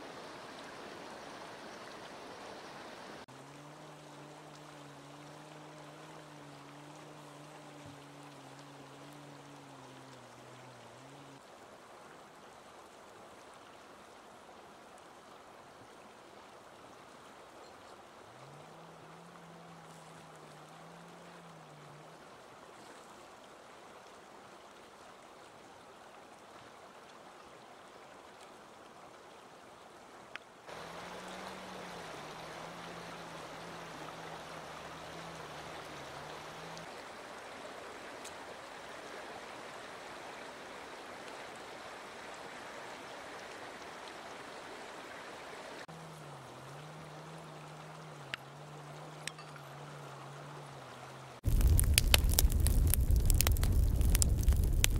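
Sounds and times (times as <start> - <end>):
river rushing: 0.0 - 54.9
low steady hum: 45.9 - 54.9.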